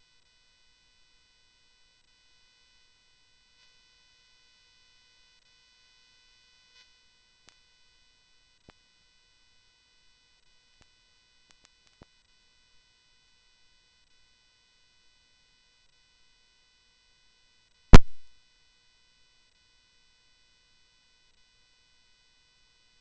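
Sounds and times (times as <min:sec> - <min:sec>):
faint steady whine: 0:18.0 - 0:18.3.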